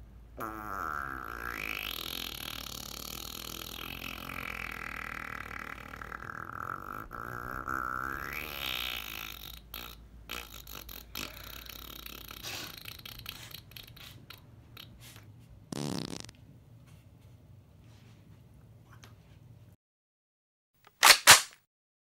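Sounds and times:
fart: 0:00.4 - 0:15.0, 0:15.7 - 0:16.4.

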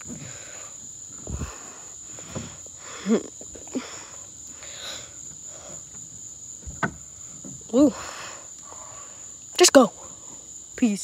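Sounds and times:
crickets trilling: 0:00.0 - 0:11.0
thumps on plywood climbing wall: 0:06.6 - 0:07.8.

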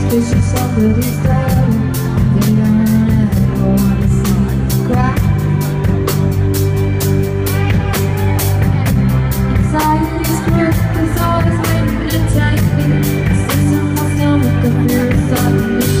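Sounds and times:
woman singing: 0:00.0 - 0:05.8, 0:09.6 - 0:16.0
live indie rock band: 0:00.0 - 0:16.0.

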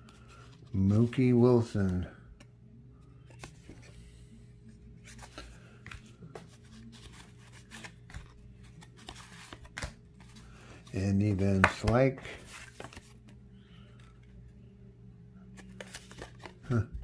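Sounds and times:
low steady hum: 0:00.0 - 0:17.0
cardboard cards clicking and rustling: 0:03.2 - 0:04.0, 0:05.0 - 0:14.4, 0:15.6 - 0:17.0.

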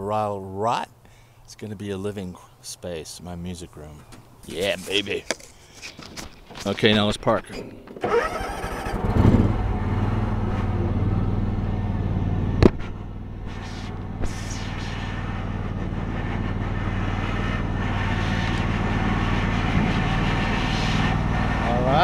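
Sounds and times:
lawn mower engine running: 0:07.8 - 0:22.0.

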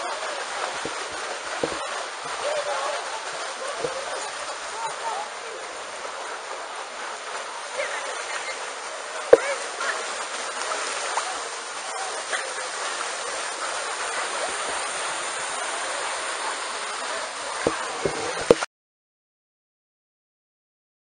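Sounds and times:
distant voices murmuring: 0:00.0 - 0:18.5
pool water splashing: 0:00.0 - 0:18.7.

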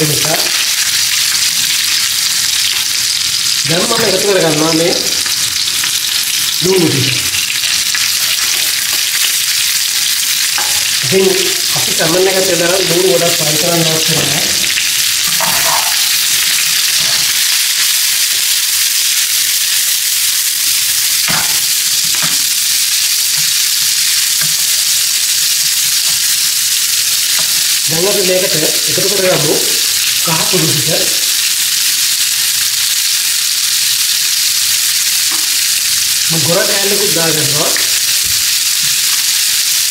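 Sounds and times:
onions sizzling in hot oil: 0:00.0 - 0:39.9
spatula scraping pan: 0:15.2 - 0:16.2.

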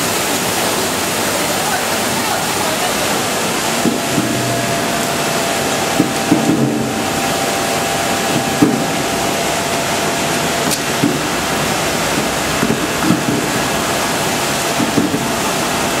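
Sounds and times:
water spray and rollers turning: 0:00.0 - 0:16.0
faint motor hum: 0:02.4 - 0:16.0
apples knocking against rollers: 0:12.1 - 0:15.4.

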